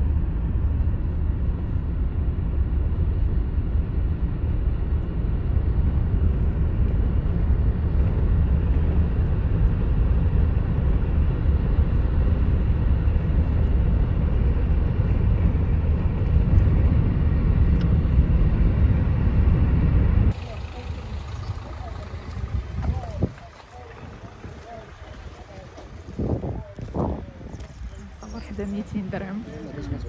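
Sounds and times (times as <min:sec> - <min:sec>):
wind noise: 0:00.0 - 0:30.0
car interior road noise: 0:13.3 - 0:30.0.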